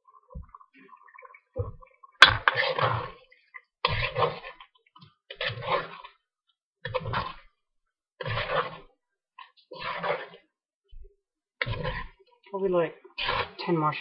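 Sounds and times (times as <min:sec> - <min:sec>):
spatula scraping wok: 0:02.2 - 0:04.7, 0:05.3 - 0:06.2, 0:08.2 - 0:10.5, 0:11.6 - 0:12.2, 0:13.1 - 0:14.0.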